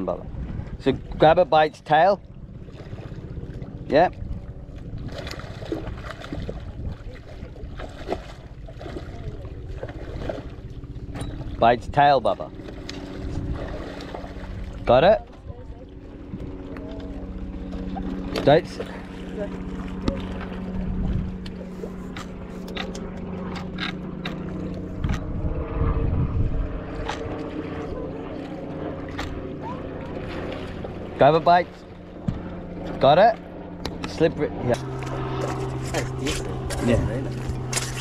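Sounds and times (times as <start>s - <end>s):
boat motor humming: 0.0s - 38.0s
steady low rumble: 0.0s - 38.0s
water splashing and sloshing: 0.0s - 38.0s.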